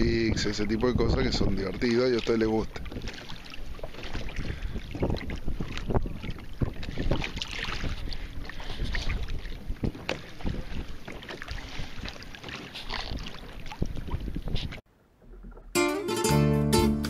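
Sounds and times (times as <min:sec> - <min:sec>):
wind noise on microphone: 0:00.0 - 0:01.9, 0:02.5 - 0:12.1, 0:12.9 - 0:14.8
water lapping against kayak hull: 0:00.0 - 0:15.8.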